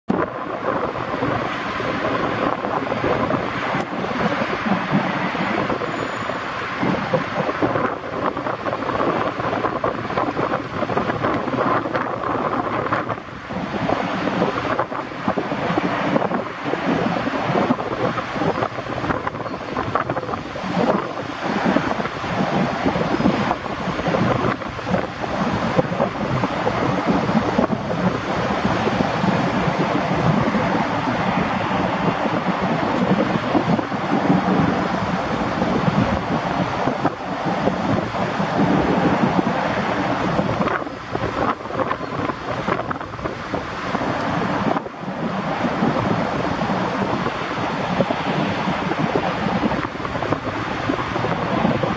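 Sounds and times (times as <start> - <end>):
choppy sea water: 0.1 - 51.9
wind buffeting microphone: 0.1 - 51.9.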